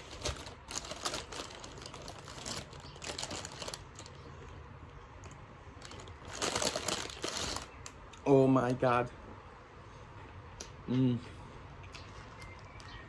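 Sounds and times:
paper bag rustling: 0.0s - 4.2s, 5.8s - 7.8s.

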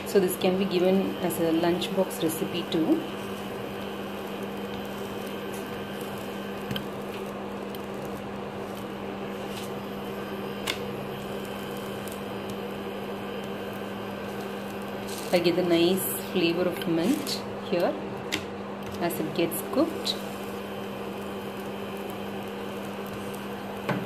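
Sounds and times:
appliance hum and fan hiss: 0.0s - 24.0s.

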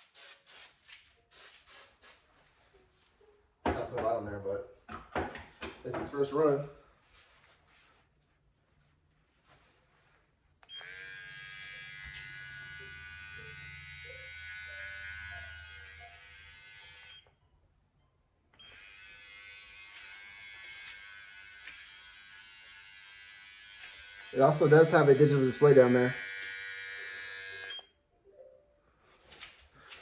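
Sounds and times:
hair trimmer buzzing: 10.7s - 17.2s, 18.6s - 27.9s.

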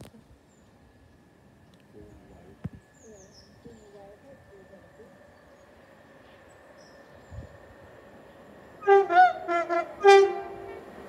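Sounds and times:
faint train hum: 0.0s - 11.0s
two-tone train horn blasts: 8.8s - 11.0s.

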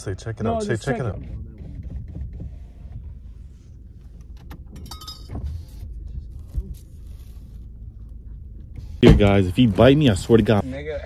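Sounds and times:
steady low rumble: 0.0s - 10.7s
light clicks and clinks: 4.8s - 5.3s.

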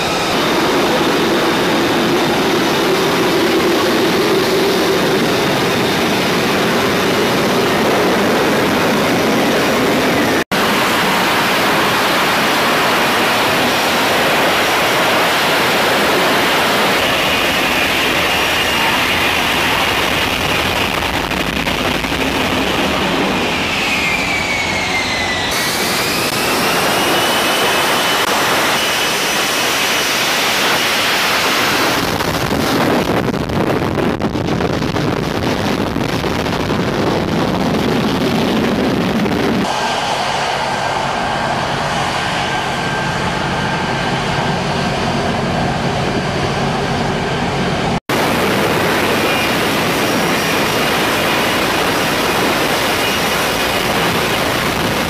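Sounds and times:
jet engine rush with whine: 0.0s - 55.0s.

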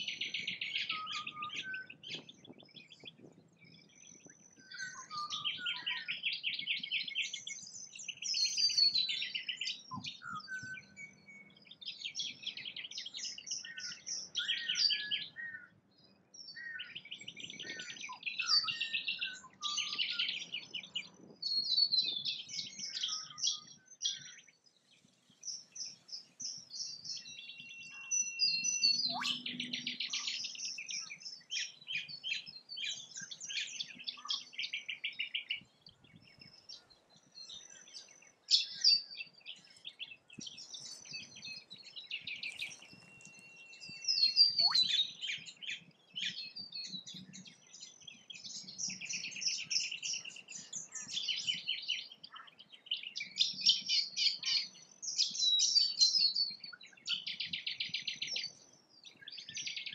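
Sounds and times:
small birds singing and chirping: 0.0s - 59.9s.

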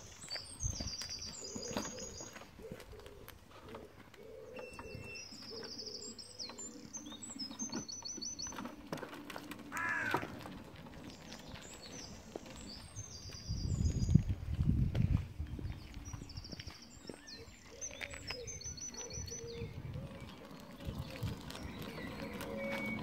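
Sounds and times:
birds singing: 0.0s - 23.0s.

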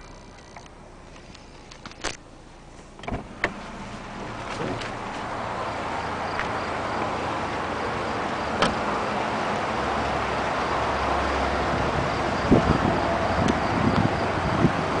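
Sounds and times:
outdoor noise: 0.0s - 15.0s
car door shutting: 2.8s - 5.3s, 8.5s - 8.9s
knocks and clicks inside a car: 3.0s - 3.6s.

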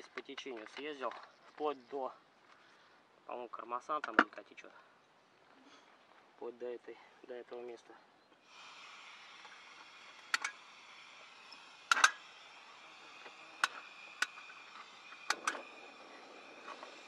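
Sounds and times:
gas stove hissing: 8.5s - 16.6s
sharp clicks: 15.2s - 15.7s.

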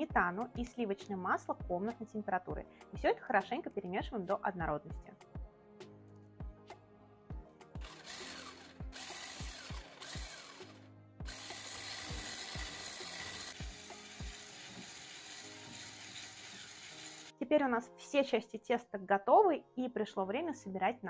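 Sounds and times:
background music with steady beat: 0.0s - 18.5s
electric hand mixer running: 7.8s - 17.3s.

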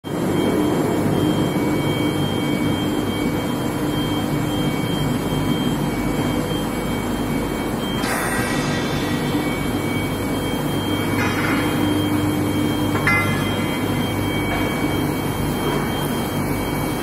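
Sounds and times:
thin high whine: 7.9s - 17.0s
industrial machinery din: 8.0s - 16.2s
low hum: 9.1s - 15.7s.

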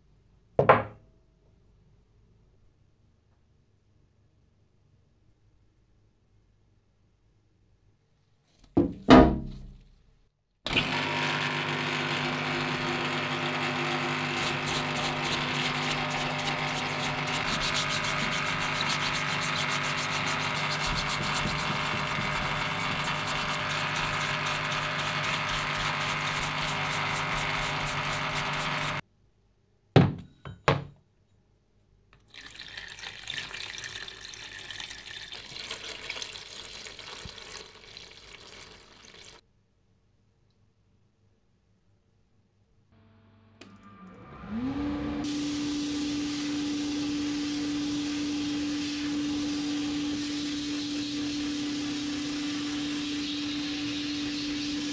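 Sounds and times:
pump humming: 10.7s - 29.0s
brush scrubbing steel: 14.2s - 29.0s
liquid pouring and splashing: 32.2s - 39.4s.

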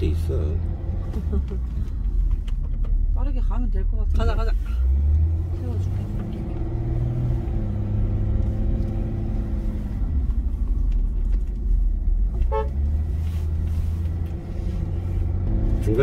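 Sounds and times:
car engine and tyre rumble: 0.0s - 16.0s
high-pitched car horn toot: 12.4s - 12.8s.

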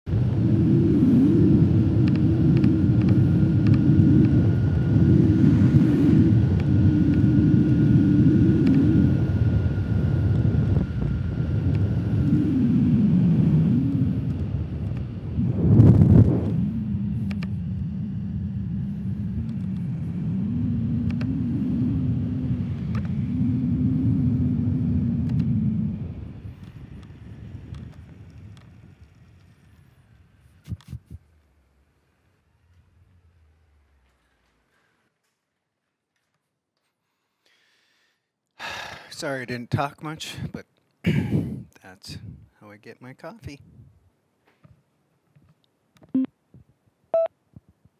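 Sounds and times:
faint high whine: 0.1s - 35.0s, 47.1s - 47.4s.

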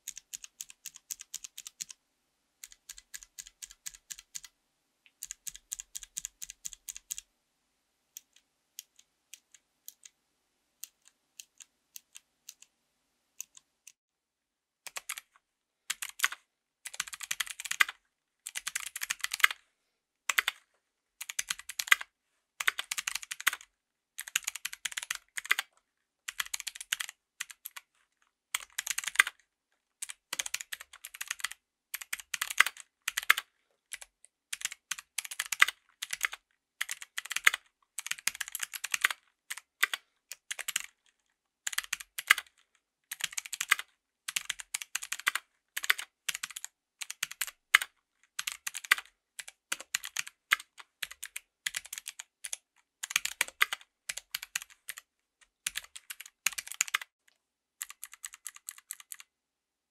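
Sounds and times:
mechanical keyboard clicks: 0.0s - 2.0s, 2.6s - 4.5s, 5.2s - 7.2s, 15.9s - 19.6s, 20.3s - 20.6s, 21.2s - 22.0s, 22.6s - 23.6s, 24.2s - 25.6s, 26.3s - 27.8s, 28.6s - 29.4s, 30.0s - 40.9s, 41.7s - 42.5s, 43.1s - 57.1s, 57.8s - 59.2s.

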